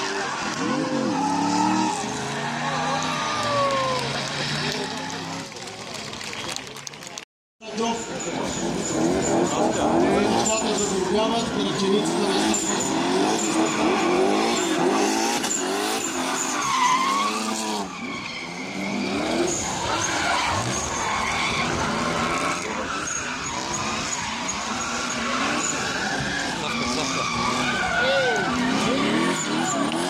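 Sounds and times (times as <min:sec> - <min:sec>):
car engines revving: 0:00.0 - 0:30.0
tyres squealing: 0:08.2 - 0:30.0.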